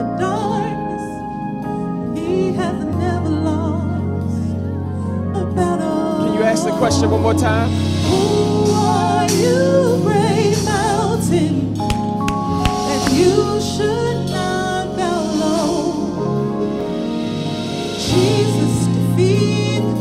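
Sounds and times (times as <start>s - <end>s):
held chords: 5.6s - 20.0s.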